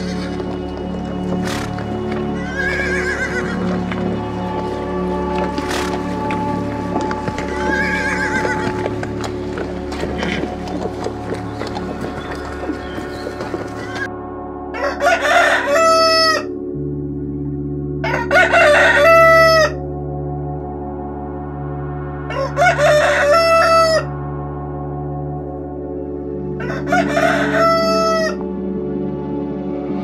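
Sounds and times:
low drone: 0:00.0 - 0:30.0
rooster crowing: 0:02.3 - 0:03.8, 0:07.4 - 0:08.7, 0:14.7 - 0:16.5, 0:18.0 - 0:19.8, 0:22.3 - 0:24.1, 0:26.6 - 0:28.4.

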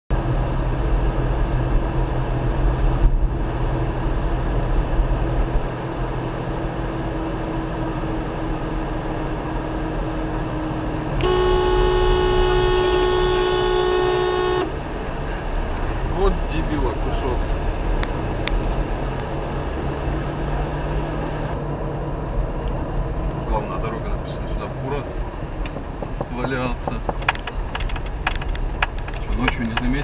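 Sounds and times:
tyre and road noise: 0:00.1 - 0:30.0
vehicle horn: 0:11.1 - 0:15.0.

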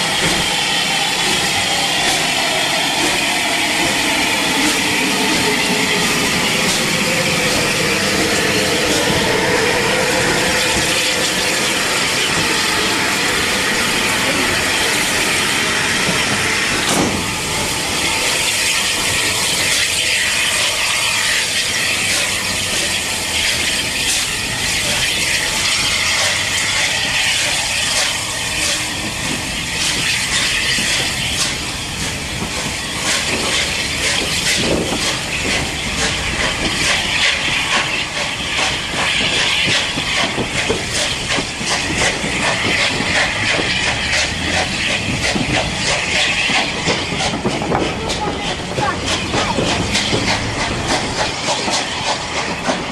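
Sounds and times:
hiss of escaping steam: 0:00.0 - 0:52.9
wheels clicking over rail joints: 0:26.2 - 0:52.9.

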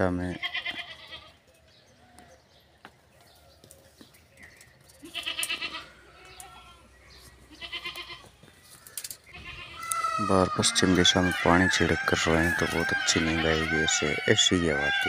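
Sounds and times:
farm animal bleating: 0:00.0 - 0:01.5, 0:05.0 - 0:08.4, 0:09.3 - 0:15.0.

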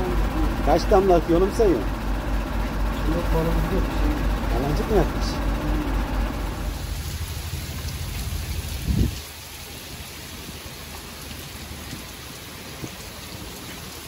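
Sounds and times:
low hum: 0:00.0 - 0:09.7
rain falling: 0:00.0 - 0:14.0.

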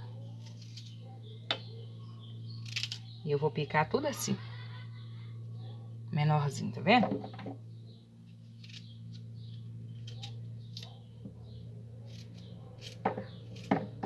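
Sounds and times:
steady low hum: 0:00.0 - 0:14.0
knife cutting: 0:08.6 - 0:09.2, 0:12.0 - 0:14.0.

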